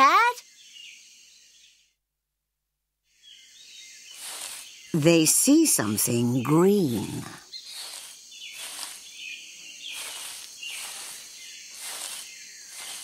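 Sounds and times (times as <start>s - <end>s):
short bird chirps: 3.1s - 5.0s, 7.5s - 13.0s
insects buzzing in pulses: 3.2s - 13.0s.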